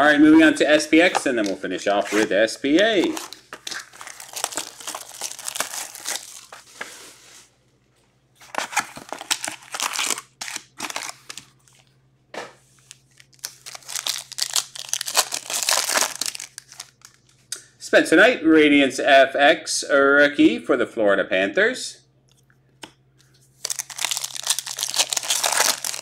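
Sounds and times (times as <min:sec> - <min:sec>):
packaging crinkling and tearing: 0:02.9 - 0:06.8, 0:08.4 - 0:11.9, 0:12.8 - 0:17.4, 0:23.6 - 0:26.0.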